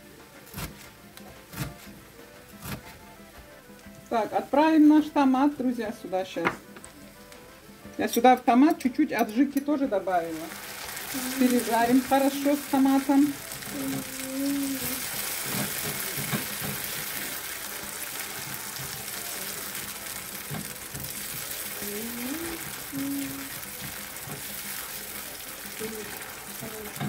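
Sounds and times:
vegetables sizzling in oil: 0.0 - 27.0
spoon scraping and knocking pan: 14.8 - 21.8, 23.5 - 25.3.

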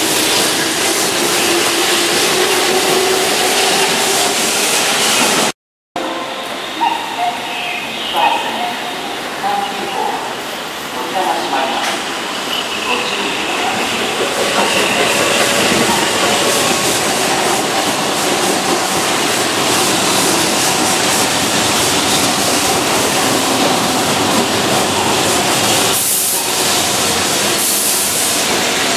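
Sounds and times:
electric train running past: 0.0 - 28.9.

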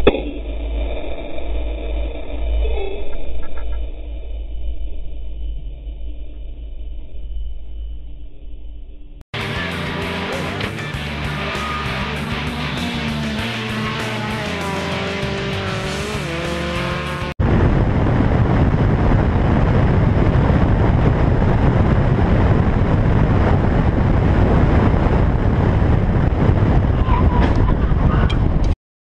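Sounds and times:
guitar music: 9.4 - 17.3
wind and road noise: 9.4 - 28.8.

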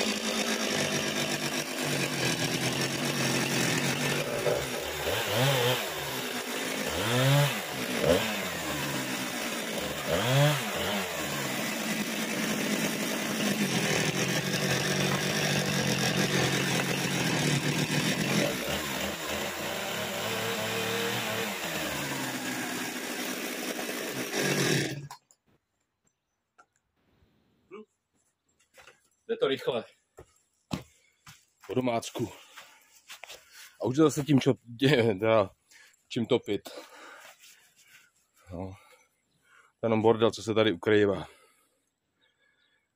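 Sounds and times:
chainsaw cutting wooden boards: 0.0 - 25.2.

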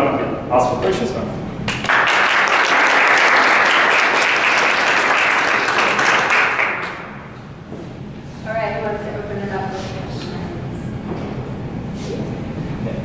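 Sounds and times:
audience applauding: 1.7 - 7.2.

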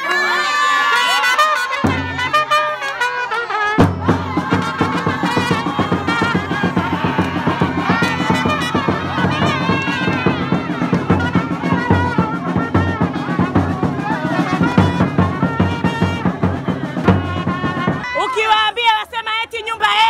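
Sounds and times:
trumpets playing a tune: 0.0 - 18.5
bass drum beat: 3.8 - 18.1.

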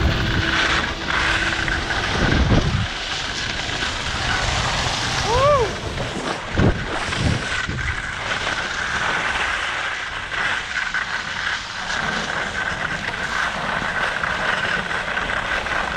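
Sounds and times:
low thumps: 0.0 - 3.8
steady high whine: 0.0 - 8.8
wind rushing over microphone: 0.0 - 13.9
skis hissing over snow: 0.0 - 15.9.

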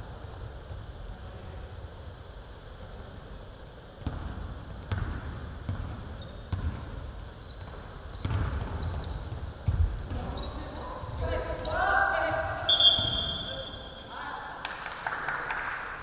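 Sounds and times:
sneakers squeaking: 4.0 - 14.1.

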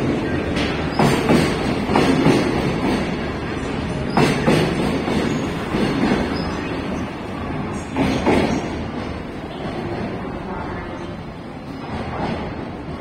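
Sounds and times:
train wheels rumbling: 0.0 - 13.0.

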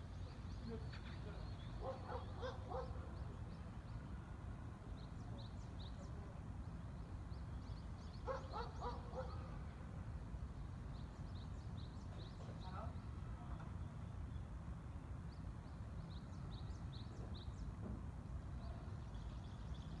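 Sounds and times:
small birds chirping: 0.0 - 4.1, 4.9 - 9.7, 10.5 - 17.8, 18.4 - 20.0
dog barking: 1.8 - 3.0, 8.2 - 9.5.

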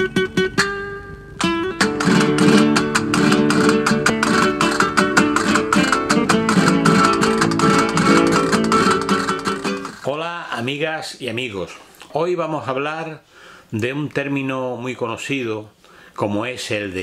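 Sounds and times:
acoustic guitar plucking and strumming: 0.0 - 10.7.

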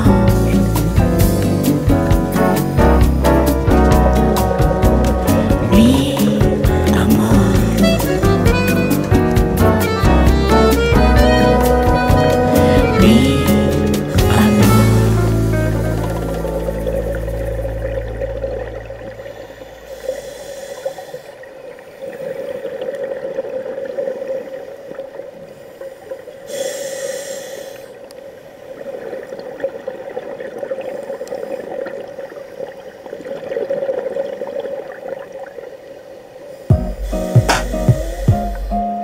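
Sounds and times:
bubbling exhalations: 0.0 - 10.7
steady underwater hum: 0.0 - 39.0
hissing regulator inhalations: 19.3 - 21.4, 26.5 - 28.0, 36.6 - 38.9.

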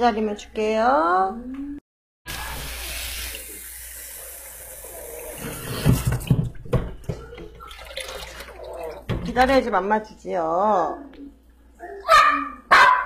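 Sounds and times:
tap water running into sink: 2.3 - 6.8, 7.4 - 9.6.

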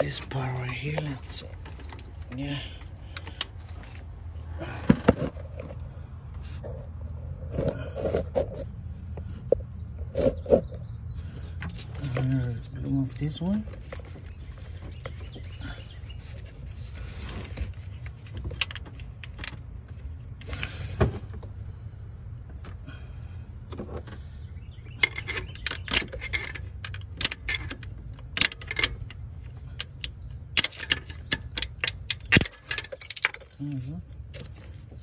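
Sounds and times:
low hum: 0.0 - 35.0
metal tools clicking on bolts: 25.0 - 33.8.

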